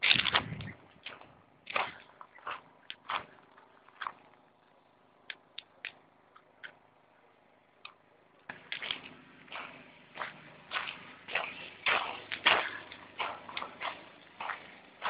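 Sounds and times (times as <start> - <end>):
footsteps crunching on rubble: 0.0 - 4.6, 8.5 - 15.0.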